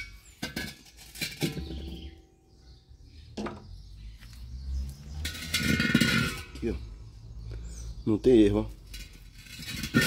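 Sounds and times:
gas cylinder knocking and scraping: 0.0s - 2.4s, 5.0s - 6.9s, 8.7s - 10.0s.

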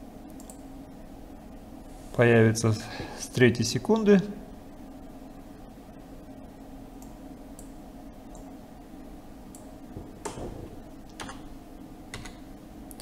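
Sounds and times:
steady low hum: 0.0s - 13.0s
keyboard and mouse clicks: 9.5s - 11.5s, 12.1s - 13.0s.

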